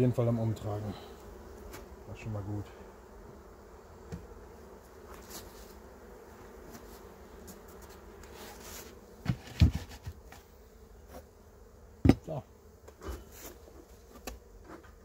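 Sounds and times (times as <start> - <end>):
bees buzzing: 0.0 - 15.0
wooden hive lid thumps: 3.2 - 15.0.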